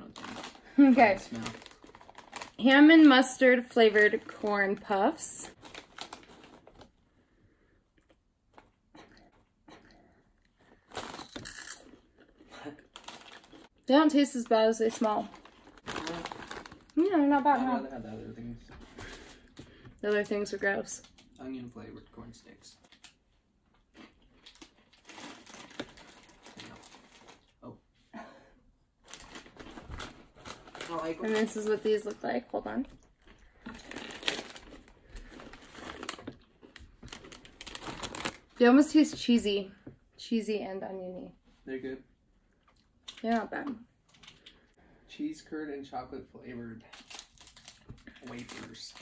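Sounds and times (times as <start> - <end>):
snack bag rustling: 0.0 - 2.6, 5.5 - 7.0, 10.6 - 13.8, 14.9 - 17.1, 23.9 - 27.6, 29.0 - 32.0, 33.2 - 38.6, 47.0 - 49.0
plastic packet crinkling: 0.0 - 6.9, 10.9 - 12.0, 12.8 - 13.7, 14.9 - 17.1, 24.4 - 27.5, 29.0 - 38.6, 46.9 - 49.0.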